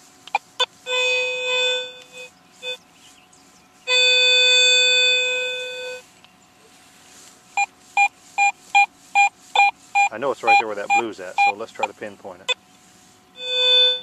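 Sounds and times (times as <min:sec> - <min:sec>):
metal detector tone: 0:00.3 - 0:02.8, 0:03.8 - 0:06.1, 0:07.6 - 0:12.0, 0:13.4 - 0:14.0.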